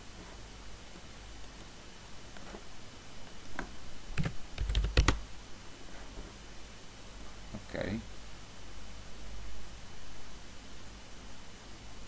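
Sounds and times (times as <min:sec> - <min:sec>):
computer keystrokes: 0:04.2 - 0:05.2.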